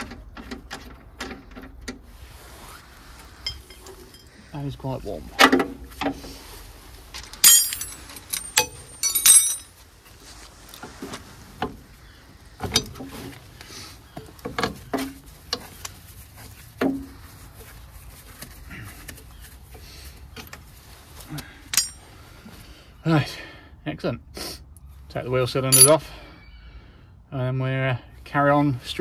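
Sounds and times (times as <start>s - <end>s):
spanner clinking on metal: 7.4s - 9.7s, 21.7s - 22.0s, 25.7s - 26.0s.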